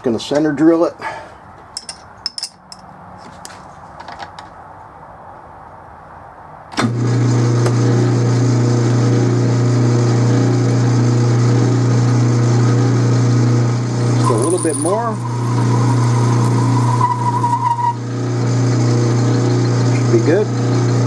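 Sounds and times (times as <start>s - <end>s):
lathe motor humming: 7.0s - 21.0s.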